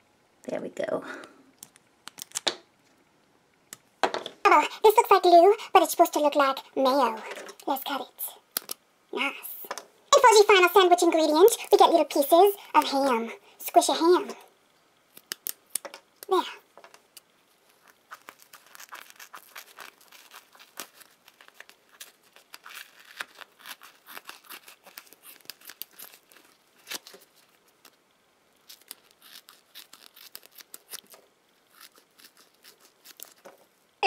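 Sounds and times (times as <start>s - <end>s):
scissors snipping foam: 15.1s - 16.3s, 17.8s - 28.0s, 28.7s - 33.6s.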